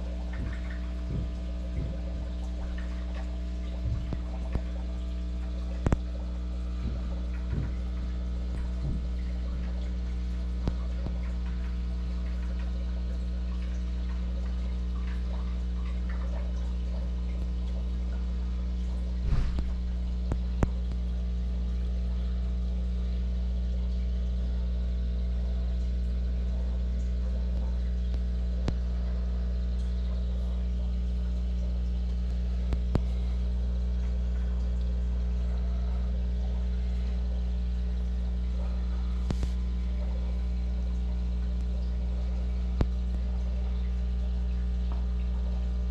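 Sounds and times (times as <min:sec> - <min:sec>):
air pump low hum: 0:00.0 - 0:23.2, 0:27.0 - 0:43.8
soft bubbling: 0:00.0 - 0:45.9.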